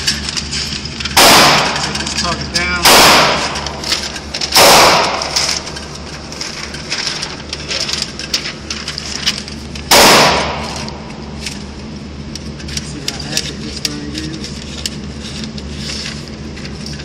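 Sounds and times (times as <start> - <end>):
loud gunshots with echo: 1.2 - 2.0, 2.8 - 3.8, 4.5 - 5.5, 9.9 - 10.9.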